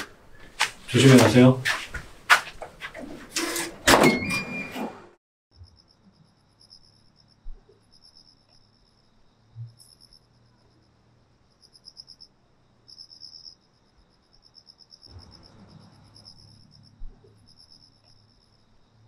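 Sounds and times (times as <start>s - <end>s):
crickets chirping: 5.5s - 19.0s.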